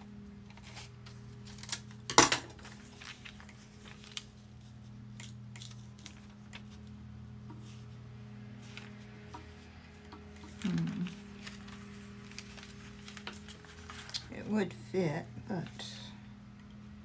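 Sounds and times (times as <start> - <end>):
steady low hum: 0.0 - 17.0
paper handling: 0.4 - 14.4
small clicks of paper folding: 2.6 - 7.8, 10.0 - 14.3.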